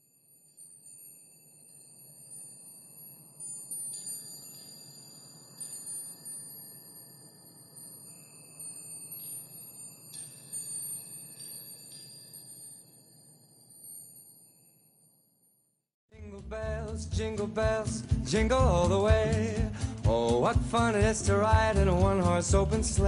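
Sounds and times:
soft high chime notes: 0.0s - 15.5s.

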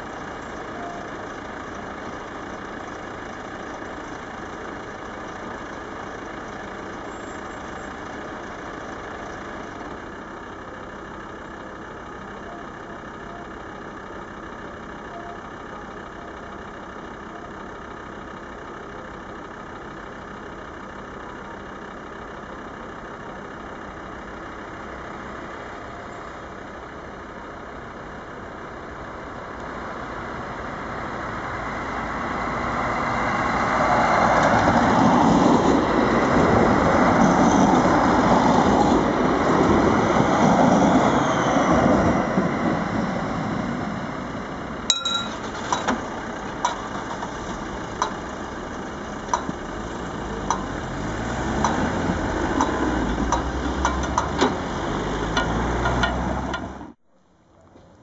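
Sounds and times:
train passing by: 29.7s - 48.4s.

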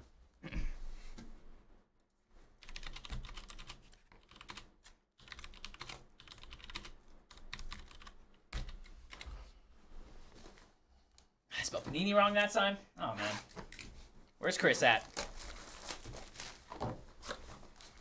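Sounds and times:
rapid typing on a keyboard: 2.6s - 9.4s.

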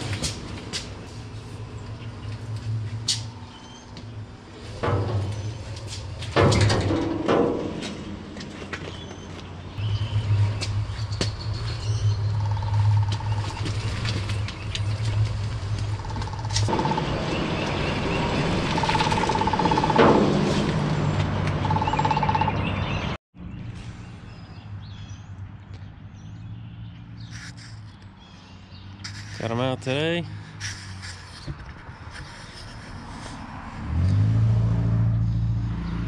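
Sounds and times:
vehicle engine humming: 0.0s - 36.0s
birds chirping: 1.6s - 6.3s, 8.0s - 31.5s.

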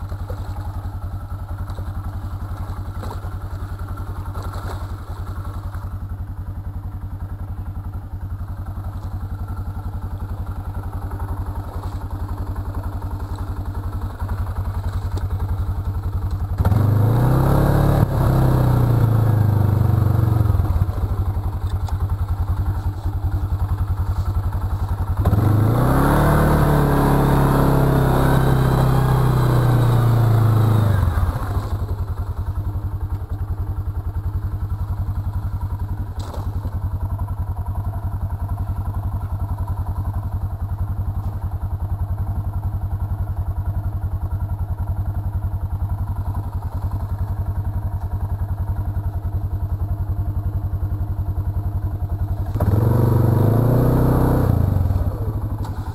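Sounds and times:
atv engine revving: 8.9s - 38.9s, 51.4s - 55.9s.

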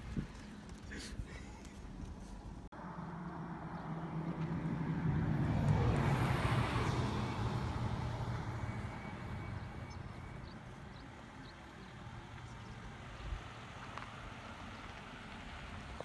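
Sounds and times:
motor vehicle passing by: 2.8s - 16.0s.

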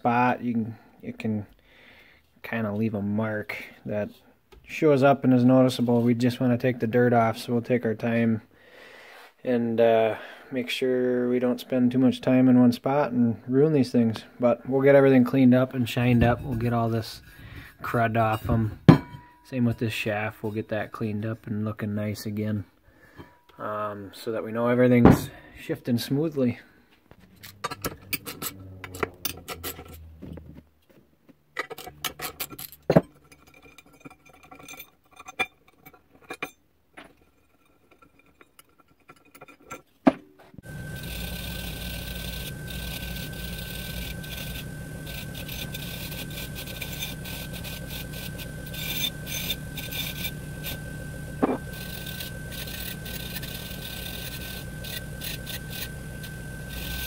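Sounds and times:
bench grinder wire wheel whining: 27.1s - 30.4s, 40.6s - 57.0s.

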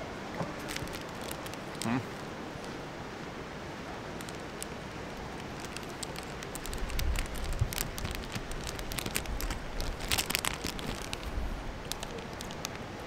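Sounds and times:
plastic wrapper crinkling: 0.6s - 2.2s, 4.2s - 12.8s.

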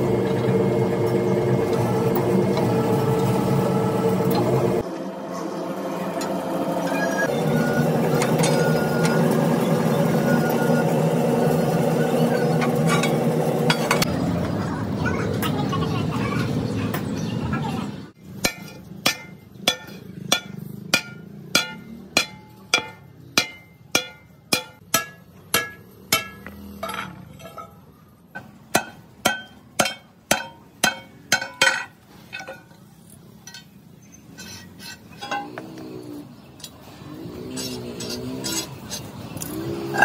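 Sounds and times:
hammer striking sheet steel: 18.4s - 27.8s, 28.4s - 32.5s.

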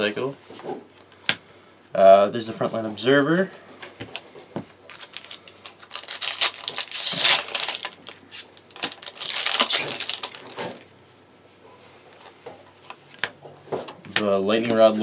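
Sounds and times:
foil wrapper crinkling: 4.8s - 10.9s.

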